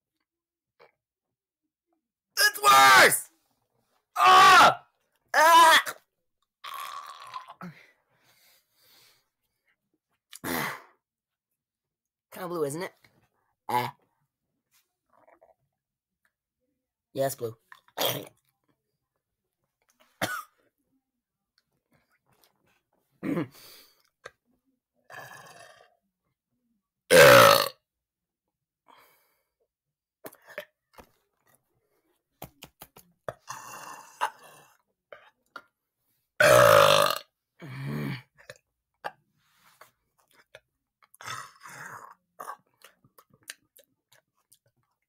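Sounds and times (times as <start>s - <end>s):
person burping: 6.6s - 7.8s, 10.3s - 11.0s, 13.7s - 14.0s, 18.0s - 18.4s, 20.2s - 20.5s, 23.2s - 23.7s, 25.1s - 26.0s, 27.1s - 27.8s, 33.3s - 34.7s, 36.4s - 39.2s.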